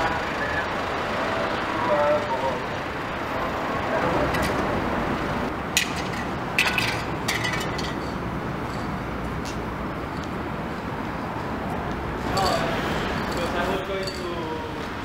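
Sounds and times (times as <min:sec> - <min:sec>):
street traffic: 0:00.0 - 0:15.0
sharp clicks and clinks: 0:12.2 - 0:14.5.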